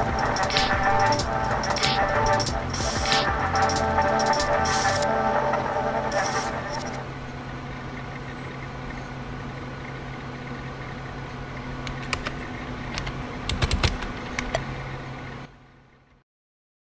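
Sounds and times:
low hum with hiss: 0.0 - 16.2
sharp clicks: 11.8 - 14.7.

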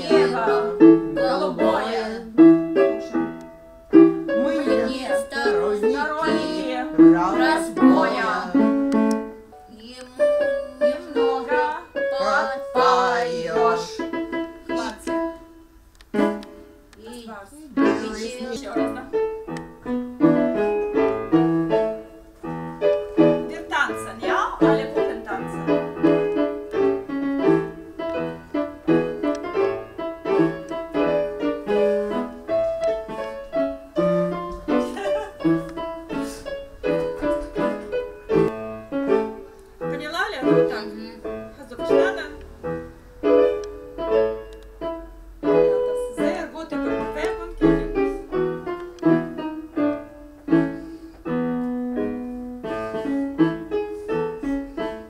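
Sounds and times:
electronic keyboard: 17.7 - 55.0.

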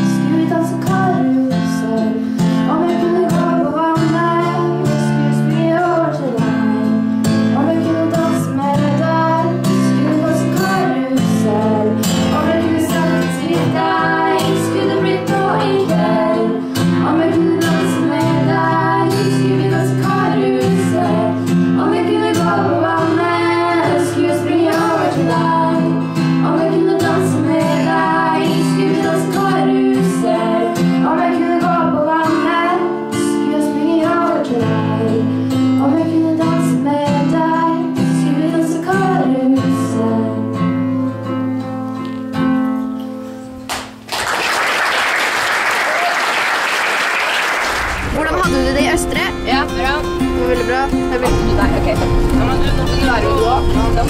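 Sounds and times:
girls singing: 0.0 - 40.7
strummed acoustic guitar: 0.0 - 43.7, 47.9 - 54.0
audience applauding: 43.7 - 49.8.

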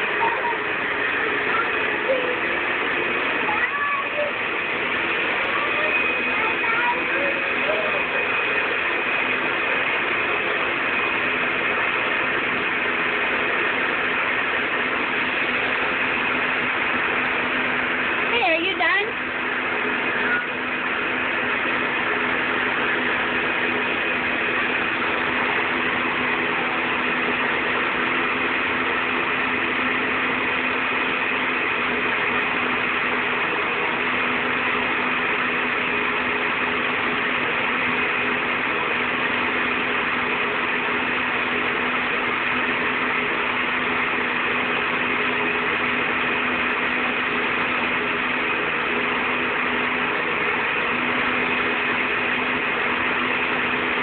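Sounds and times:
vacuum cleaner running: 0.0 - 54.0.

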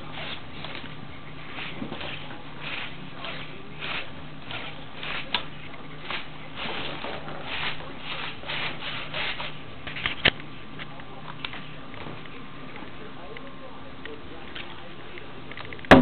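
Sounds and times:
low steady hum: 0.0 - 16.0
rubbing and scraping: 6.0 - 10.2.

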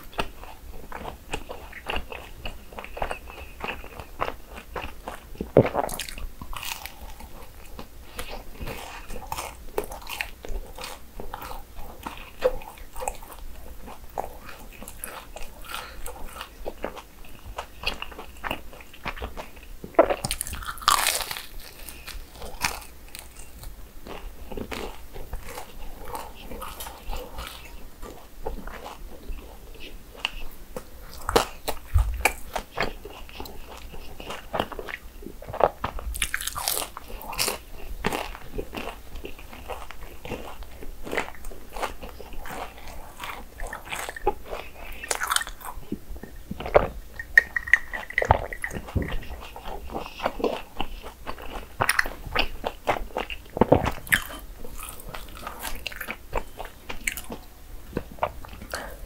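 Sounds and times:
crunching and chewing: 0.0 - 59.0.

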